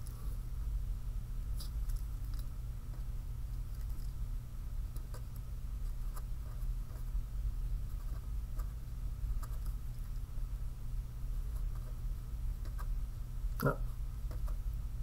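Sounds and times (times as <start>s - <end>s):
steady low hum: 0.0s - 15.0s
marker pen scratching on paper: 7.8s - 10.2s.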